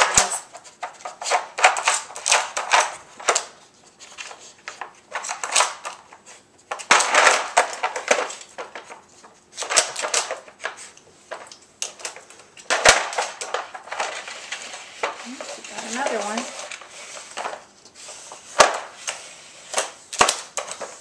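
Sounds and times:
hard plastic clattering: 4.7s - 21.0s.

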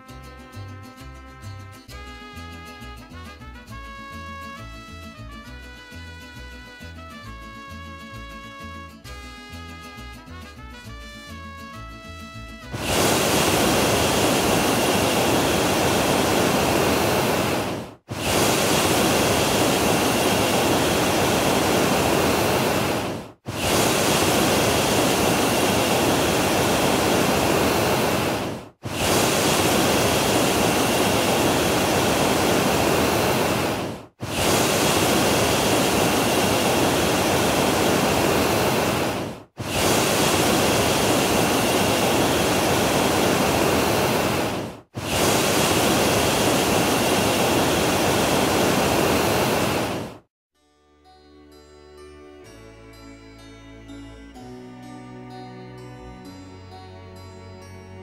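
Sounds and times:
loud rushing noise: 12.7s - 50.2s.

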